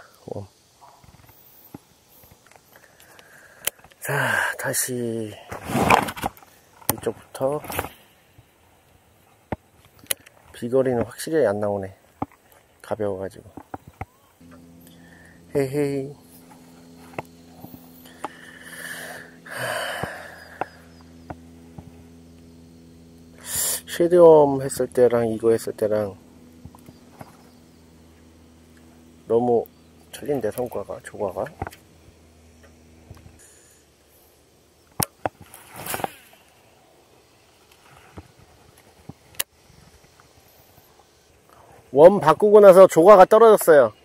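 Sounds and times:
steady low hum: 0:00.0 - 0:44.0
swishing rustle: 0:35.4 - 0:36.5.

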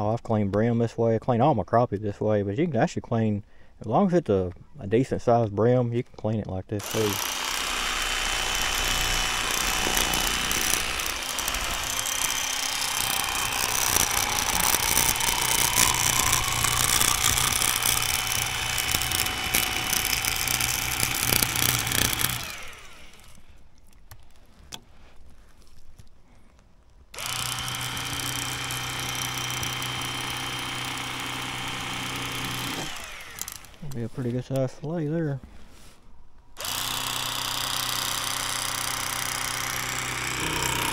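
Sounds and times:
electric fillet knife running: 0:06.8 - 0:23.4, 0:27.2 - 0:33.8, 0:36.6 - 0:40.9
small clicks: 0:08.5 - 0:24.8, 0:32.4 - 0:34.0.

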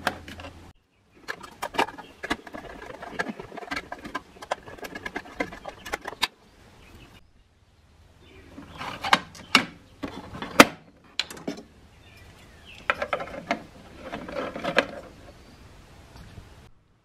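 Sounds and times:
plastic rubbing: 0:00.0 - 0:06.4, 0:12.8 - 0:15.4
plastic parts clicking together: 0:01.2 - 0:06.4.

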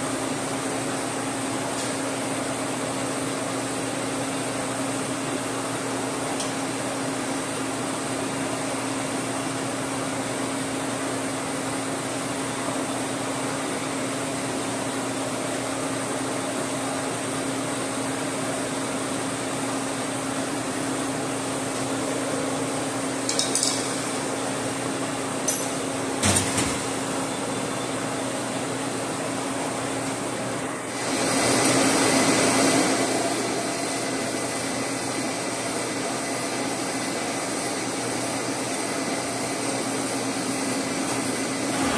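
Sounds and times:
metal tools clinking on steel: 0:23.3 - 0:24.1.

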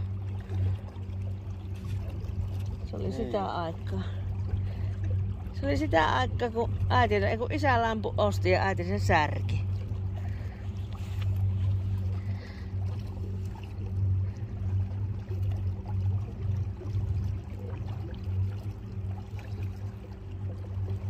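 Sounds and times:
electric boat motor humming: 0:00.0 - 0:21.0
water running along hull: 0:00.0 - 0:21.0.

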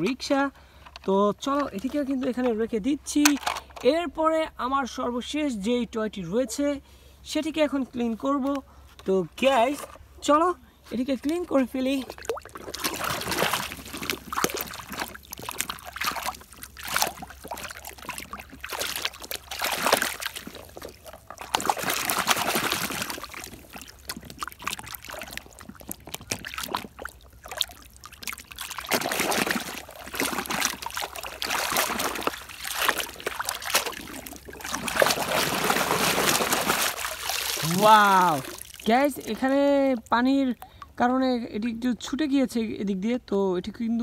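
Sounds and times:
water splashing and sloshing: 0:10.8 - 0:41.7.

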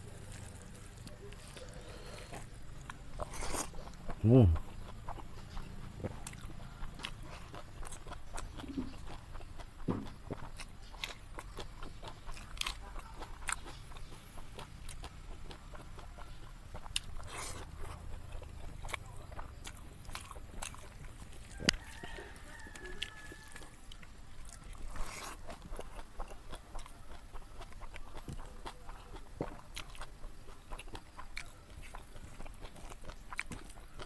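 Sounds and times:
chewing and crunching: 0:00.0 - 0:34.0.

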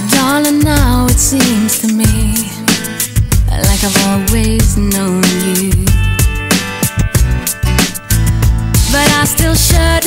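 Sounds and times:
pop song with drum beat: 0:00.0 - 0:10.0.

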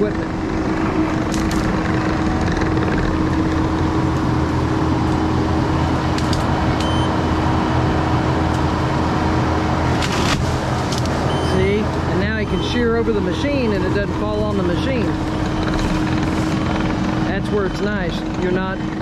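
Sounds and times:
diesel engine under load: 0:00.0 - 0:19.0
branches cracking and snapping: 0:09.9 - 0:11.2.

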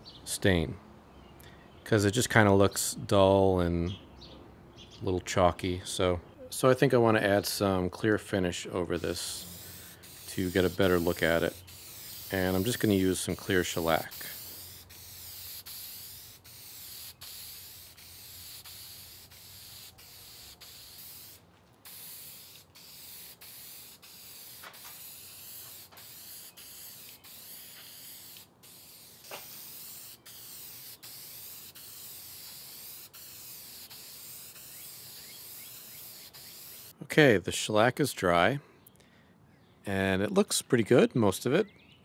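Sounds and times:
aerosol can spraying: 0:09.0 - 0:37.0.

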